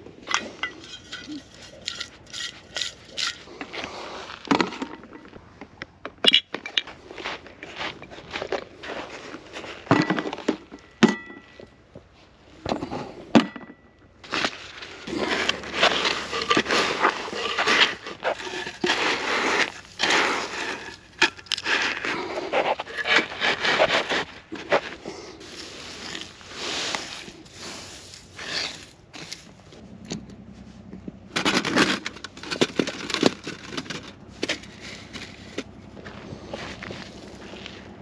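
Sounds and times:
wooden planks scraping on shell gravel: 0.4 - 5.7, 14.2 - 29.8, 31.3 - 38.0.

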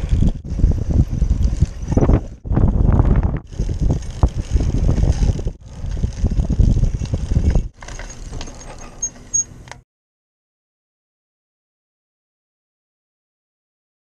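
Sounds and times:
wind buffeting microphone: 0.0 - 8.6
trike rumbling and clattering on road: 0.0 - 9.8.

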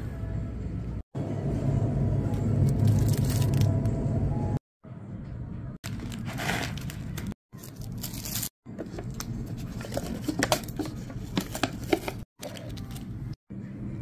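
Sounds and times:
plastic packaging crinkle: 2.7 - 3.7.

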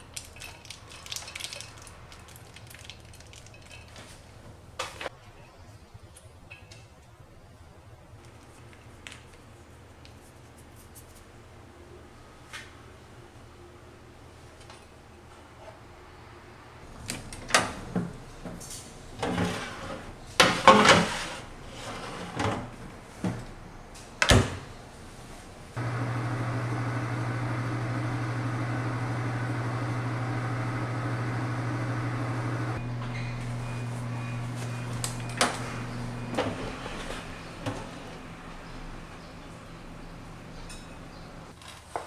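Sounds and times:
oven humming: 25.8 - 41.5.

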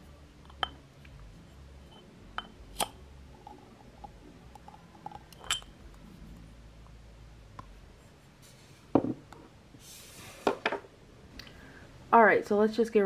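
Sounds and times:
glass jar clicks: 1.9 - 5.7
jar set down with dull knock: 8.9 - 9.2.

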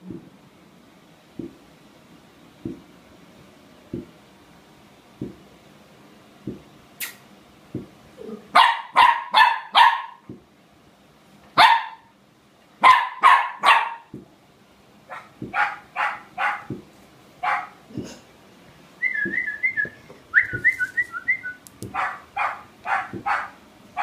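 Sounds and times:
puppy barking: 8.5 - 10.2, 11.6 - 12.1, 12.8 - 14.1, 15.1 - 16.8, 17.4 - 17.8, 21.9 - 24.0.

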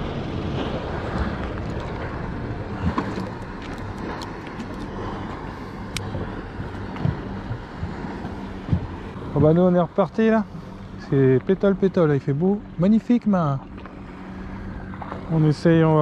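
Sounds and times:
outboard engines idling: 0.0 - 16.0
water noise: 0.0 - 16.0
wind: 0.0 - 16.0
fishing gear clicks and knocks: 2.9 - 5.0.

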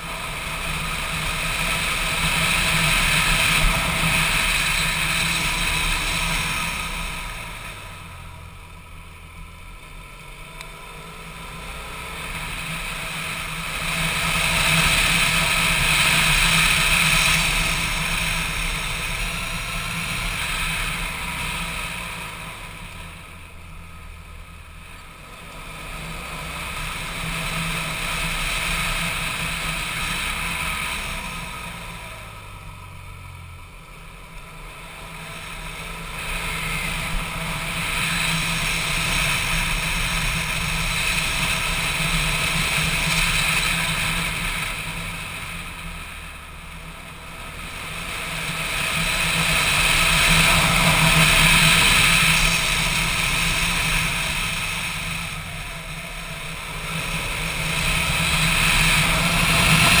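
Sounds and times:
motorcycle engine running: 0.0 - 60.0.

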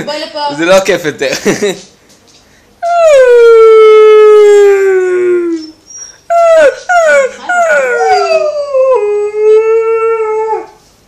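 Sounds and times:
dog howling: 2.8 - 10.8.

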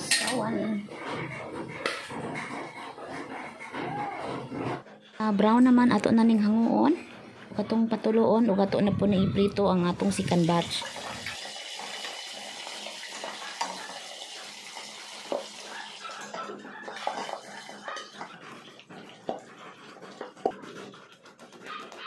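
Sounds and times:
meat sizzling in hot oil: 10.4 - 16.1.

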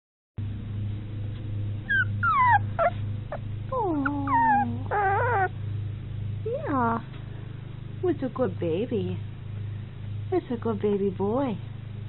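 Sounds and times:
low hum: 0.4 - 12.0
puppy whimpering: 1.8 - 5.6.

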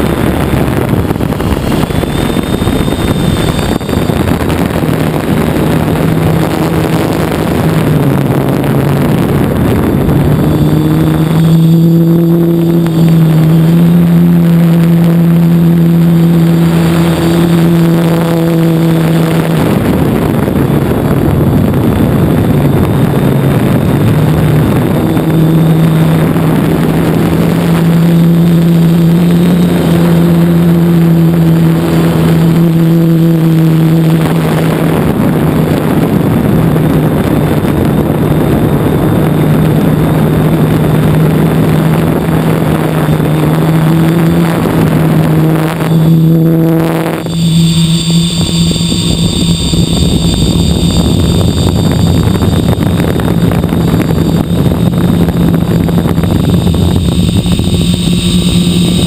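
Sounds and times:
drone motors and propellers humming: 0.0 - 59.0.

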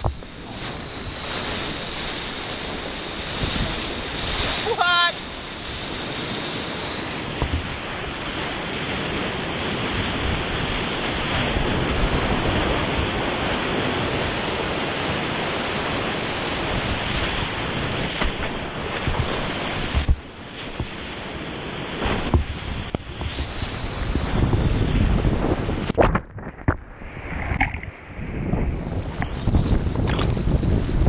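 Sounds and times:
rushing whitewater: 0.0 - 25.8
wind buffeting microphone: 0.0 - 31.0
water splashes and knocks: 7.4 - 7.8, 18.1 - 21.1, 22.0 - 23.4.

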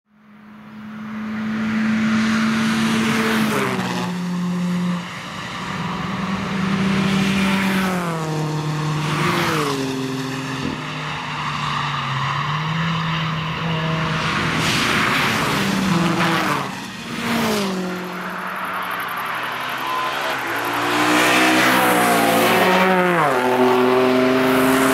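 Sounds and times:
sports cars passing at speed: 0.2 - 24.9.

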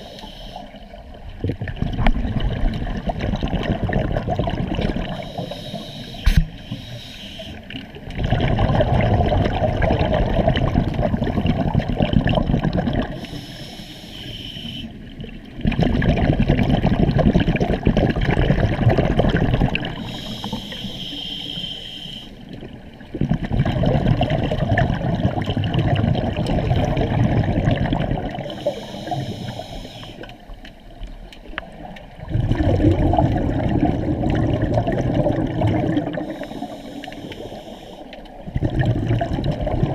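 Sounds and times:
regulator inhalation hiss: 0.0 - 0.8, 5.1 - 7.6, 13.2 - 14.9, 20.0 - 22.4, 28.5 - 30.3, 36.2 - 38.1
underwater exhaled bubbling: 0.0 - 39.9.

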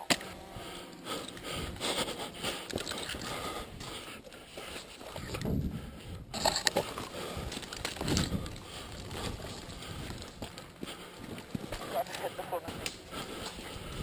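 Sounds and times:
footsteps on gravel: 6.4 - 14.0.

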